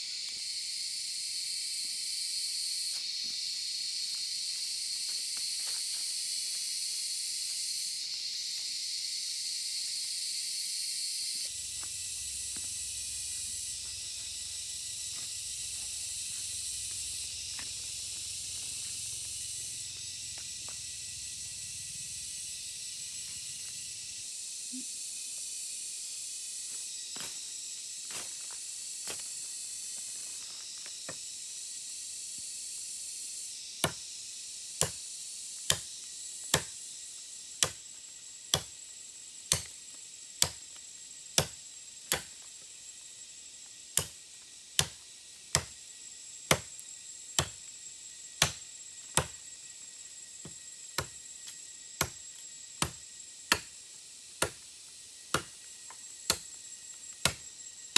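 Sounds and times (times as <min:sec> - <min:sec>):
steady high hiss: 0:00.0 - 0:57.9
machete chopping bamboo: 0:33.8 - 0:34.0, 0:34.8 - 0:35.0, 0:35.6 - 0:35.9, 0:36.5 - 0:36.8, 0:37.6 - 0:37.8, 0:38.5 - 0:38.8, 0:39.5 - 0:39.8, 0:40.4 - 0:40.7, 0:41.3 - 0:42.4, 0:43.9 - 0:44.2, 0:44.8 - 0:45.8, 0:46.5 - 0:46.8, 0:47.4 - 0:47.6, 0:48.4 - 0:49.4, 0:51.0 - 0:51.2, 0:52.0 - 0:52.2, 0:52.8 - 0:53.8, 0:54.4 - 0:54.7, 0:55.3 - 0:55.6, 0:56.2 - 0:56.5, 0:57.2 - 0:57.5.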